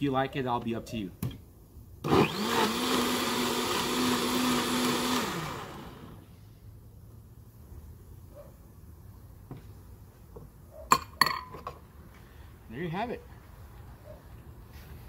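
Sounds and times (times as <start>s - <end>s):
blender motor running: 2.1s - 6.2s.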